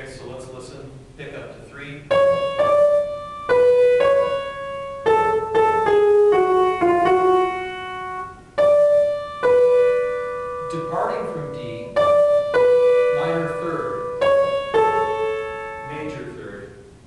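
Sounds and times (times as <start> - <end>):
piano melody: 2.0 - 17.0.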